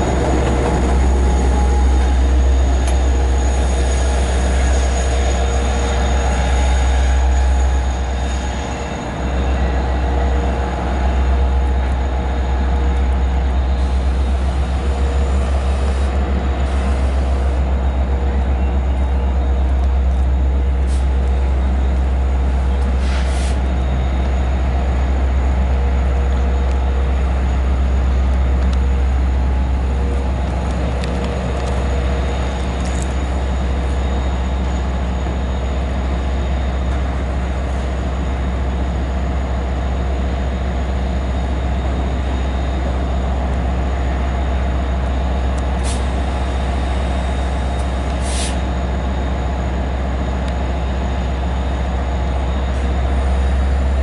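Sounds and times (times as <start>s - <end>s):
diesel locomotive drone: 0.0s - 54.0s
air brake hisses: 23.0s - 23.6s, 45.8s - 46.2s, 48.2s - 48.6s.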